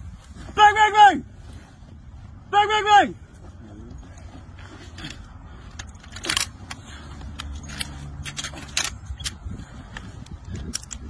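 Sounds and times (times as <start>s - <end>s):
steady low rumble: 1.2s - 11.0s
machine gun metallic clicks: 5.7s - 9.4s.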